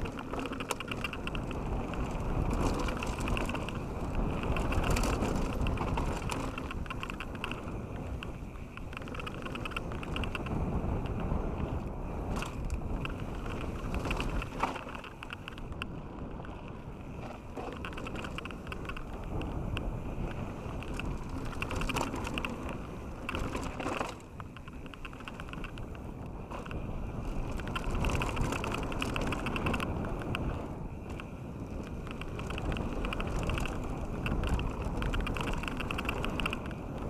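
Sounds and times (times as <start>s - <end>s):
bike rattling and clicking: 0.0s - 37.0s
bike tyres rumbling on gravel: 0.0s - 37.0s.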